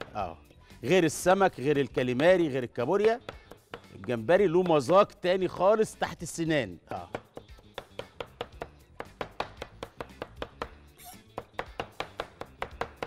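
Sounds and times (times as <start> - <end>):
cleaver chopping on cutting board: 3.0 - 5.0, 7.0 - 13.0.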